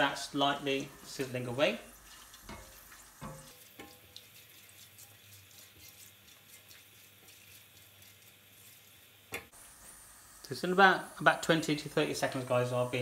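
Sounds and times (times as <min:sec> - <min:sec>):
spices sizzling in oil: 0:00.0 - 0:13.0
spatula tapping a pan: 0:02.4 - 0:04.2.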